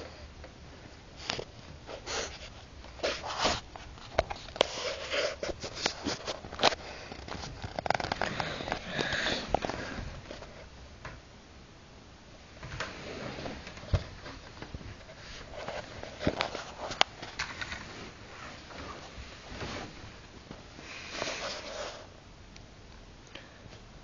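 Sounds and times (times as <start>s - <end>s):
fabric rustling and scratching: 1.2s - 10.8s, 12.7s - 20.3s.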